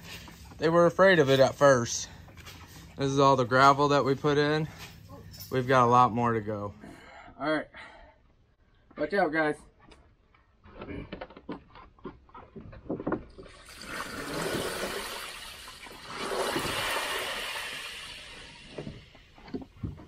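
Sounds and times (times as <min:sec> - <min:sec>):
plastic pool knocking and scraping: 0:12.5 - 0:17.6
water gushing and splashing: 0:13.4 - 0:19.2.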